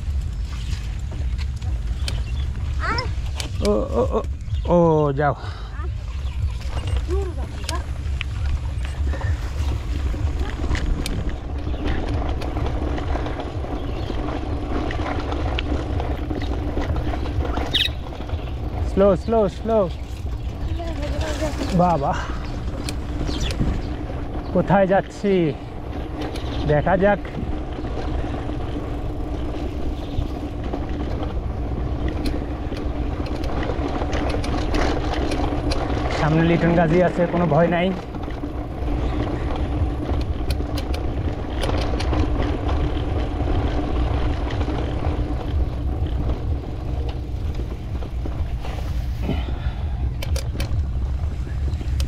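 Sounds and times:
bike clicks and rattles: 0.0 - 52.0
bike rolling over brick path: 0.0 - 52.0
wind rumbling on microphone: 0.0 - 52.0
wind on microphone: 5.8 - 18.8.

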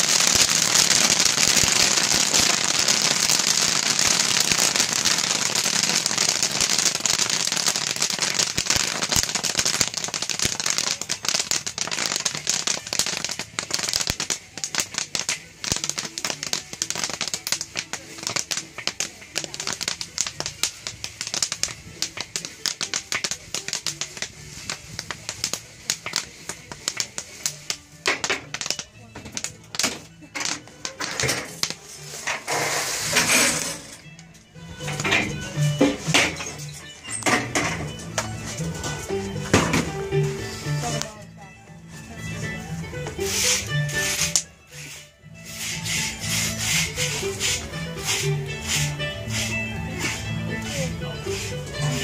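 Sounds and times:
corn popping in a kettle: 0.0 - 34.0.

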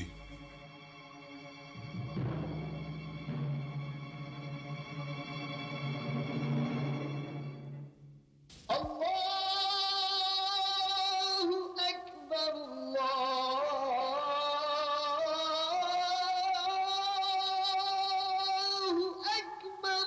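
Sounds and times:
person chanting call to prayer: 0.0 - 0.4, 8.7 - 20.0.

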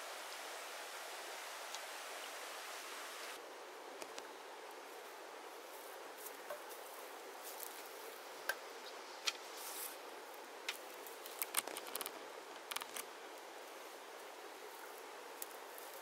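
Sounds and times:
steady outdoor hiss: 0.0 - 16.0
sharp clicks and snips: 10.7 - 13.1.

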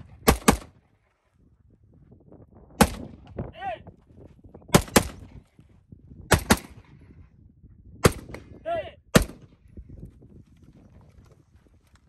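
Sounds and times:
rifle shots: 0.0 - 0.8, 2.8 - 3.2, 4.7 - 5.4, 6.3 - 6.9, 8.0 - 8.5, 9.2 - 9.5.

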